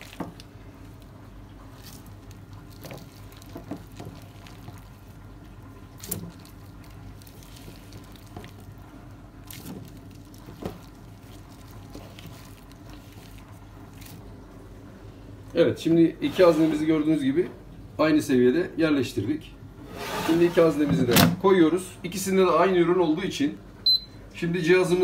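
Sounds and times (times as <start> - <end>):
wet handling of raw chicken: 0.0 - 15.5.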